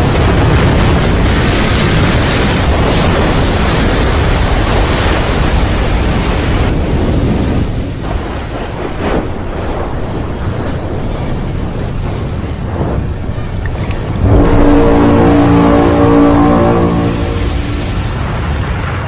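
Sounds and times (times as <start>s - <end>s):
deep rumble: 0.0s - 19.0s
wind rushing: 0.0s - 19.0s
giant wave rushing: 11.1s - 19.0s.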